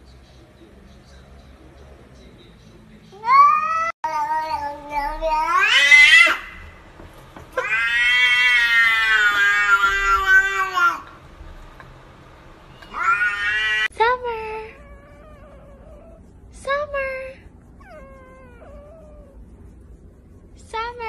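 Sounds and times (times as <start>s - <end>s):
cat meowing: 3.2s - 6.8s, 7.6s - 11.1s, 12.8s - 13.9s, 17.8s - 19.4s.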